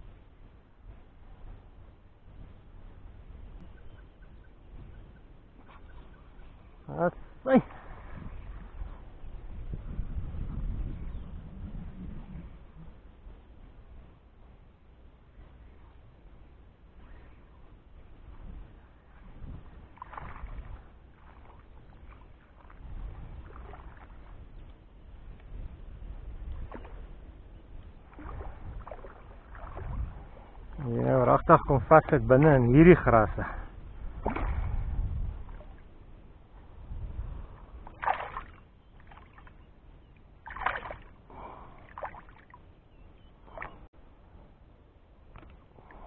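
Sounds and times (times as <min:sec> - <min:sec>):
wind rumble on microphone: 0:00.0 - 0:46.0
water splashing and sloshing: 0:18.9 - 0:25.5, 0:26.4 - 0:30.9, 0:32.0 - 0:36.8, 0:37.4 - 0:42.7, 0:43.4 - 0:43.9, 0:45.2 - 0:46.0.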